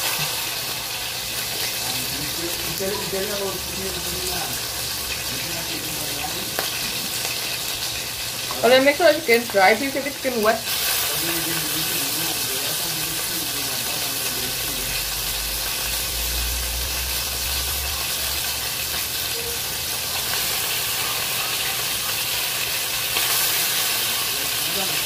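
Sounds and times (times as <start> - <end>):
chicken sizzling in hot oil: 0.0 - 25.0.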